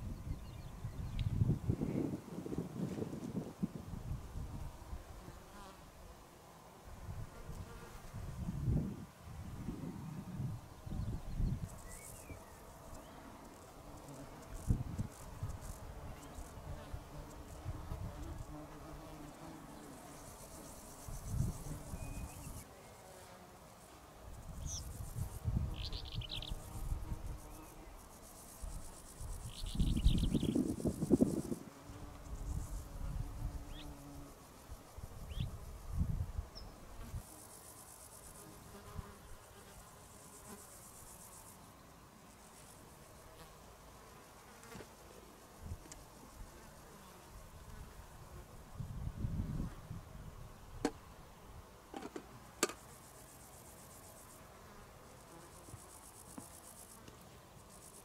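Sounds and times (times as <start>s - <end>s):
wind rumble on microphone: 0.0s - 5.3s, 7.0s - 11.9s, 14.6s - 15.7s, 21.1s - 22.3s, 24.4s - 27.3s, 29.3s - 33.8s, 35.0s - 37.2s, 47.8s - 50.8s
flying insect buzzing: 0.1s - 6.0s, 6.8s - 51.0s, 51.8s - 58.0s
insects chirping in high pulses: 9.9s - 16.6s, 19.3s - 22.7s, 23.8s - 38.7s, 52.6s - 58.0s.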